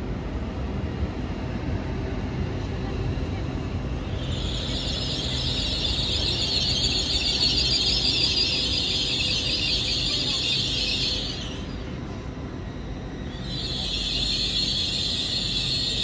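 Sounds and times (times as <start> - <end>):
low train rumble: 0.0 - 16.0
train brakes squealing: 4.0 - 16.0.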